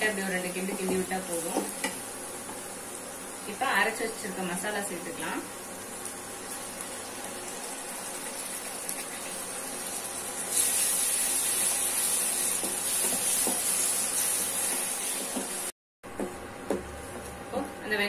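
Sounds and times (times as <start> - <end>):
paste sizzling in hot oil: 5.7 - 15.7.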